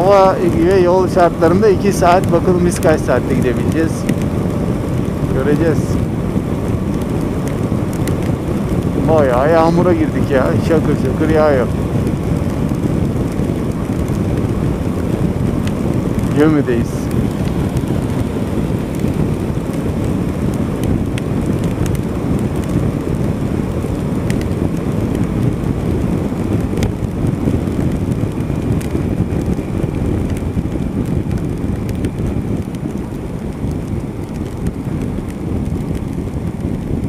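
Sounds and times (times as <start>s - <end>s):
rain ticking on camera: 0.0s - 37.0s
wind rushing: 0.0s - 37.0s.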